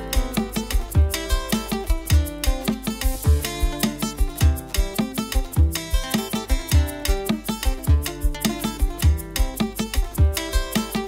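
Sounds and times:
plucked guitar music: 0.0s - 11.0s
deep bass thump: 3.2s - 3.8s.

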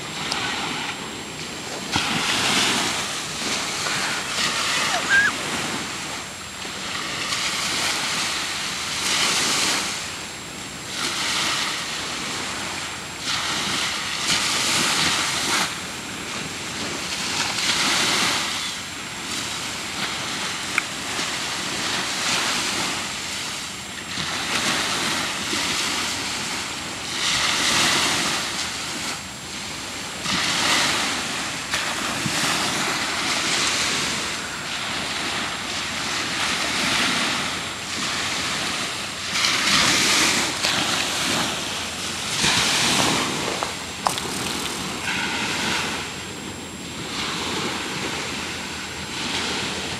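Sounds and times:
choppy sea water washing: 0.0s - 49.9s
wind buffeting microphone: 24.3s - 49.9s.

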